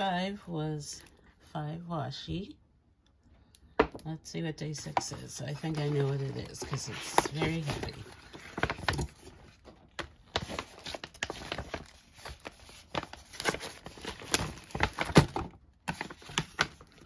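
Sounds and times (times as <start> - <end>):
wrapping paper rustling: 4.9 - 17.0.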